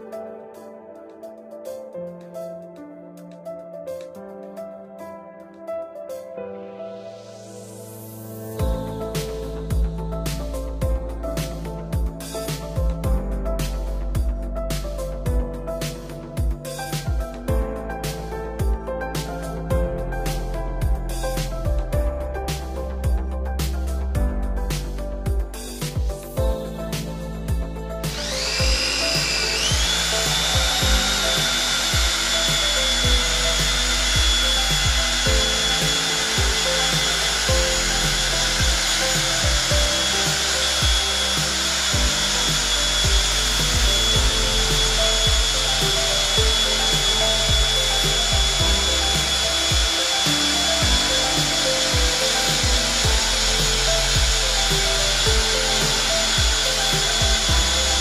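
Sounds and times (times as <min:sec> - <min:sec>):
cordless drill whining: 0:28.1 - 0:58.0.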